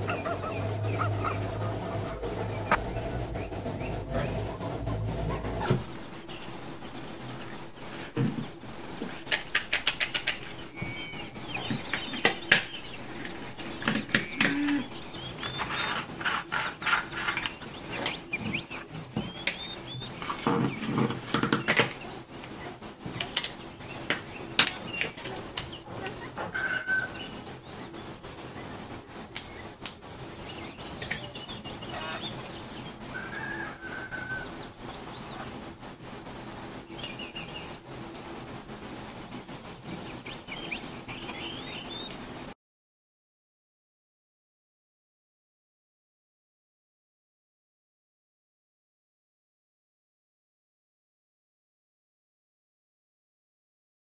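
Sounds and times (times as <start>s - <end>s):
bird chirps: 0.0s - 4.5s, 5.3s - 16.0s, 16.6s - 22.2s, 40.0s - 42.2s.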